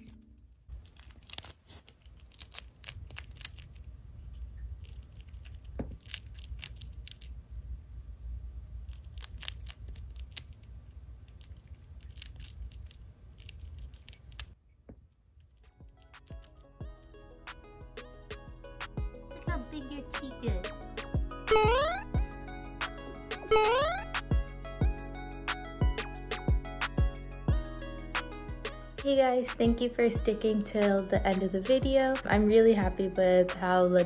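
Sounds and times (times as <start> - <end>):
hamster nibbling crunchy treat: 0.7 - 3.9, 4.7 - 7.4, 8.8 - 14.6.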